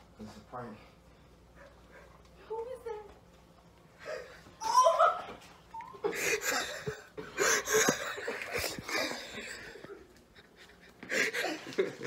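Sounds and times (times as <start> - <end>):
man chuckling: 6.0 - 12.0.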